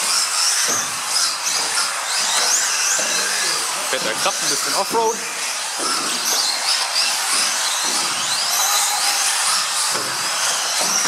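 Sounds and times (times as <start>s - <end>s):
rc car motors whining: 0.0s - 11.0s.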